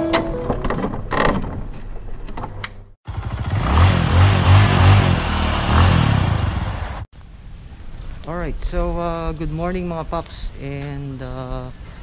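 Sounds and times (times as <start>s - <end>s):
motorcycle engine revving: 3.0s - 7.1s.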